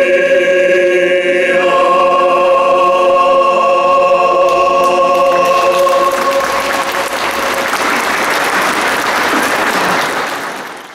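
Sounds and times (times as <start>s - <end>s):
choir holding a chord: 0.0s - 8.8s
applause: 4.8s - 10.9s.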